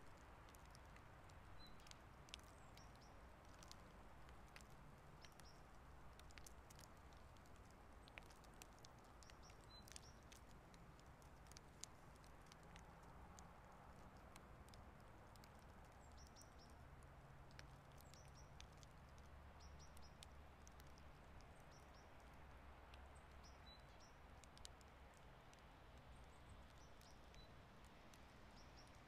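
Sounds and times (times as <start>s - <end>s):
tiny ticks: 0.0s - 29.0s
small birds chirping: 1.6s - 3.9s, 4.5s - 13.1s, 14.2s - 22.4s, 23.0s - 29.0s.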